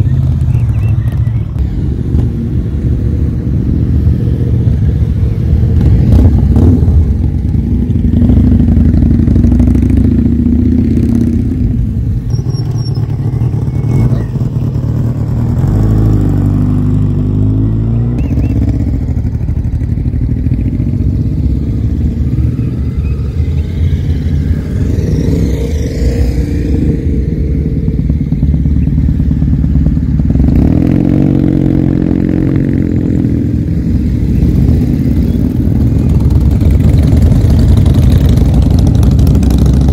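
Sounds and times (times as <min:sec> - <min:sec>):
motorcycles riding past: 0:00.0 - 0:39.9.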